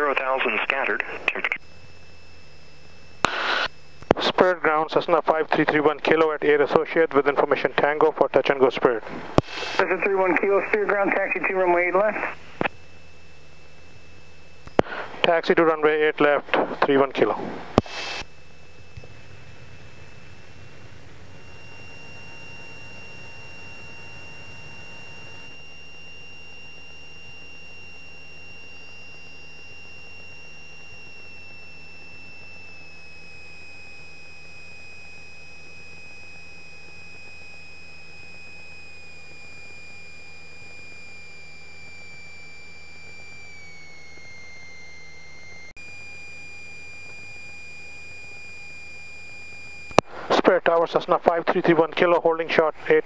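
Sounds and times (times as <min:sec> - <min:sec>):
high-pitched electrical whine: 0:00.0 - 0:53.0
muffled aircraft engine drone: 0:00.0 - 0:53.0.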